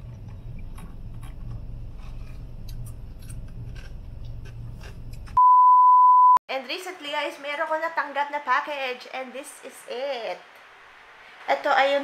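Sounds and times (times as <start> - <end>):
low hum inside car: 0.0 - 5.4
loud electronic bleep: 5.4 - 6.4.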